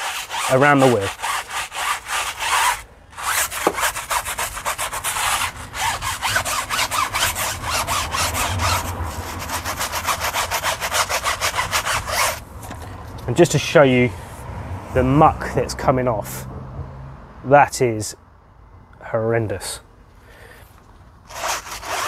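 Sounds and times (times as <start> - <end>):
brush scrubbing a tyre: 0.0 - 12.4, 21.3 - 22.0.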